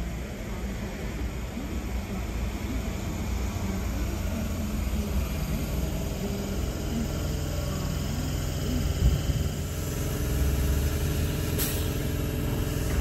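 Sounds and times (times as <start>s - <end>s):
electric train slowing: 0.0s - 13.0s.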